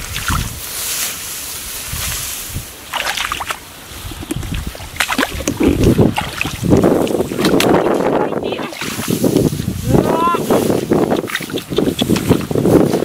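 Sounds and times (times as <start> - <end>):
hands splashing in water: 2.9 - 3.6, 4.2 - 7.9.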